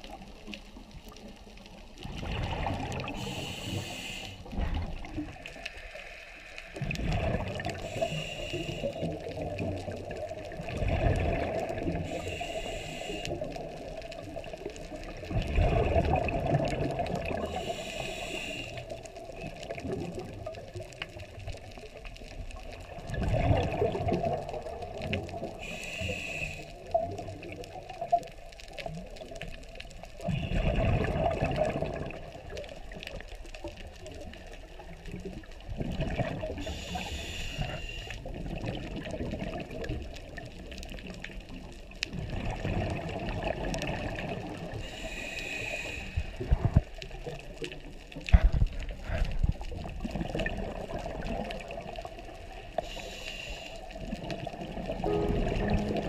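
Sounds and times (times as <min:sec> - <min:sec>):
gurgling exhale bubbles: 0:01.9 - 0:06.1, 0:06.7 - 0:52.8, 0:54.0 - 0:56.0
regulator inhale hiss: 0:03.0 - 0:04.6, 0:07.8 - 0:09.2, 0:12.0 - 0:13.8, 0:17.4 - 0:19.2, 0:25.5 - 0:27.0, 0:36.6 - 0:38.3, 0:44.8 - 0:46.6, 0:52.8 - 0:54.1.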